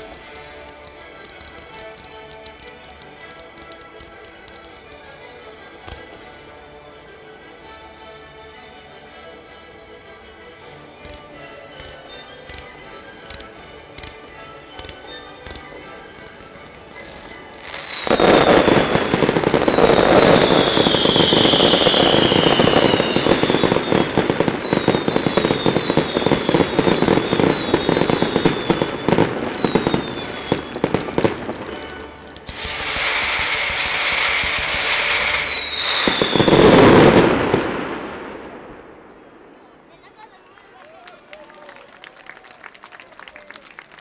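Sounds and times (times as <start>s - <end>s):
fireworks crackling and banging: 0.0s - 6.2s, 11.0s - 40.4s
fireworks whistles falling: 16.2s - 31.8s, 32.5s - 38.0s.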